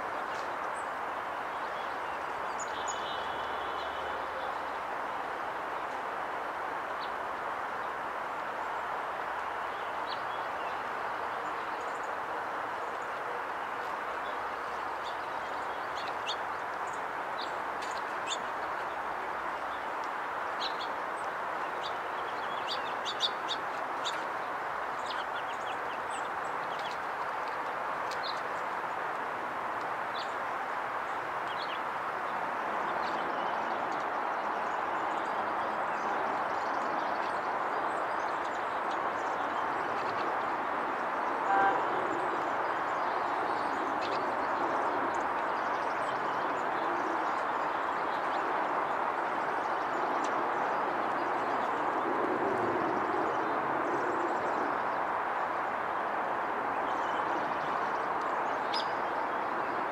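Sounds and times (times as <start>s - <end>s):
outdoor background noise: 0.0s - 59.9s
faint high bird chirps: 41.4s - 42.0s
short distant horn toot: 41.4s - 42.0s.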